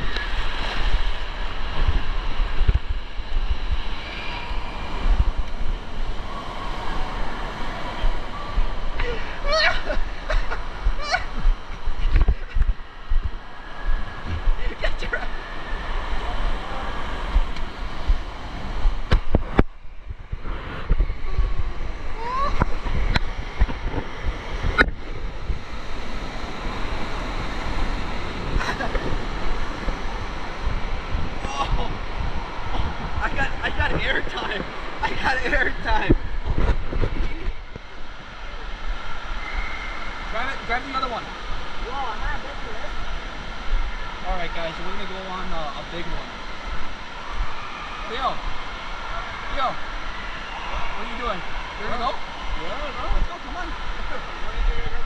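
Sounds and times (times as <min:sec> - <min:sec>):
wind buffeting microphone: 0:00.0 - 0:09.0, 0:09.8 - 0:38.2
rushing water: 0:00.0 - 0:55.0.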